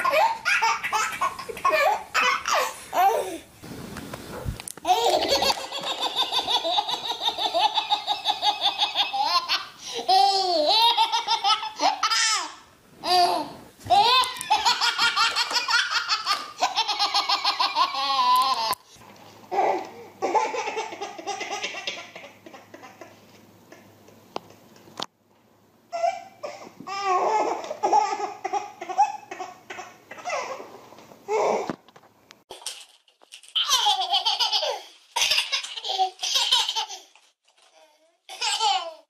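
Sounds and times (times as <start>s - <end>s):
baby laughing: 0.0s - 3.4s, 4.9s - 18.8s, 19.5s - 23.8s, 25.9s - 30.7s, 33.6s - 37.2s, 38.3s - 39.0s.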